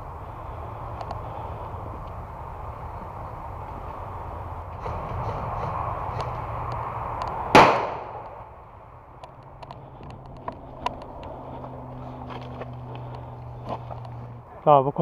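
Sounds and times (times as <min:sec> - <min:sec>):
faint clicks: 0:01.0 - 0:01.2, 0:09.2 - 0:11.4
loud sharp bang: 0:07.5 - 0:08.2.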